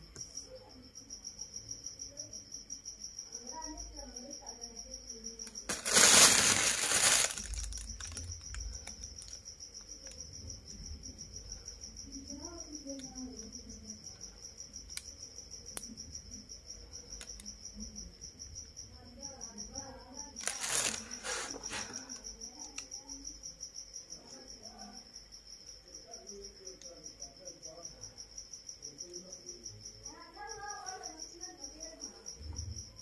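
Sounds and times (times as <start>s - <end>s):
cricket chirping: 0.0s - 33.0s
loud rustle: 5.7s - 7.8s, 20.4s - 21.9s.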